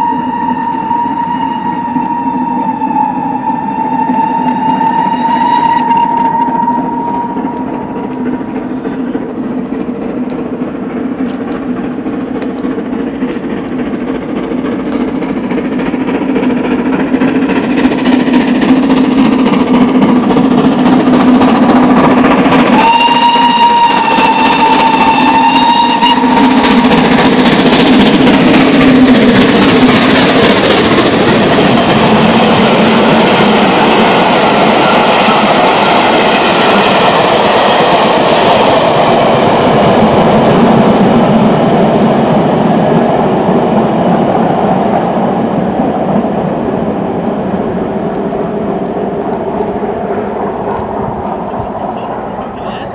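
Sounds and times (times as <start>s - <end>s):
steam whistle: 0.0s - 8.6s, 22.5s - 27.4s
rumble of train wheels: 0.0s - 52.9s
steam locomotive approaching: 0.0s - 52.9s.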